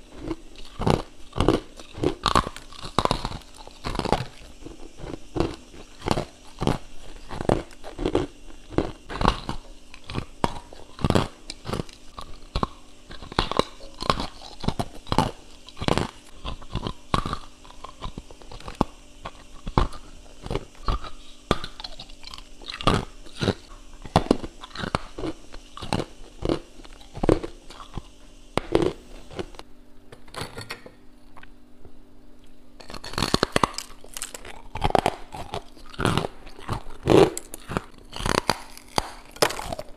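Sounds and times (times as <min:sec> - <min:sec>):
crunching frost chunks: 0:32.8 - 0:39.9.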